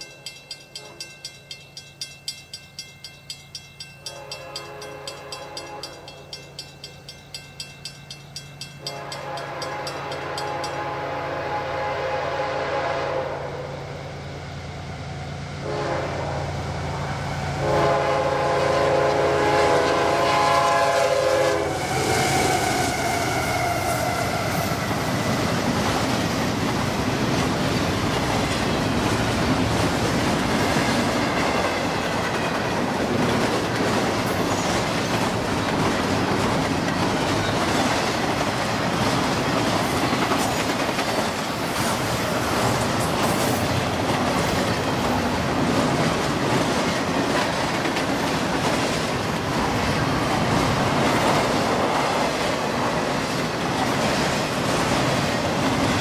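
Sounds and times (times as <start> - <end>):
train horn: 0.8 - 1.1, 4.0 - 6.3, 8.8 - 14.1, 15.6 - 24.9, 30.8 - 32.9
locomotives passing: 21.4 - 56.0.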